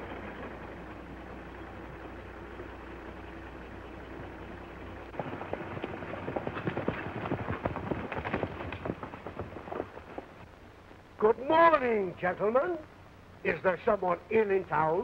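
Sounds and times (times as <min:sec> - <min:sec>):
car engine hum: 0:00.0 - 0:07.7
galloping horse hoofbeats: 0:00.0 - 0:10.5.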